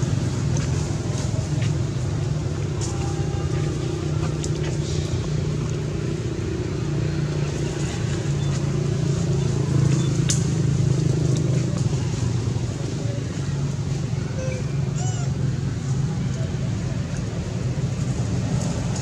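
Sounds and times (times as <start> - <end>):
low engine hum: 0.0 - 19.0.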